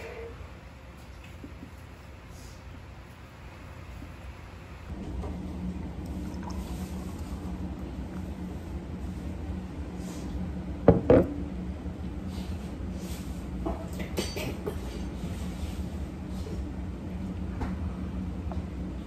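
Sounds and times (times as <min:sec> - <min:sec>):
steady low hum: 0:00.0 - 0:19.0
beer pouring into a glass: 0:05.9 - 0:08.2.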